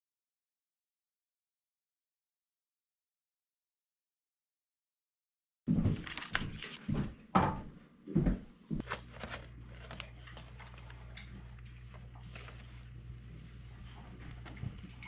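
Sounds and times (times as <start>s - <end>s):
laminator humming: 5.7s - 15.0s
plastic sheet and paper rustling: 5.9s - 7.0s, 8.8s - 15.0s.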